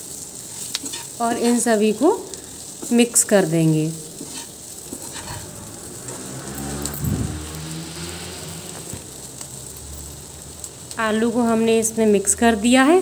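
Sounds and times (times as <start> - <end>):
potatoes sizzling in oil: 0.0 - 13.0
metal spatula scraping: 0.4 - 1.8, 4.0 - 7.3.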